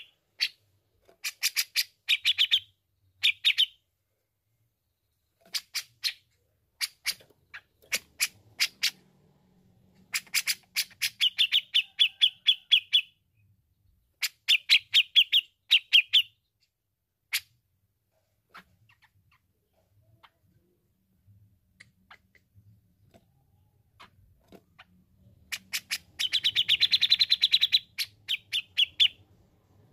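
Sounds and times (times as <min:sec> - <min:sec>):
bird calling with sharp notes: 0:01.2 - 0:03.8, 0:24.0 - 0:29.2.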